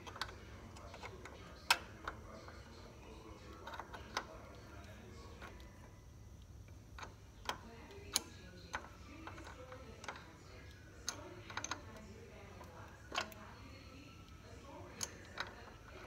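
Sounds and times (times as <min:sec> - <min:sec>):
light clicks and taps: 0:03.5 - 0:16.0.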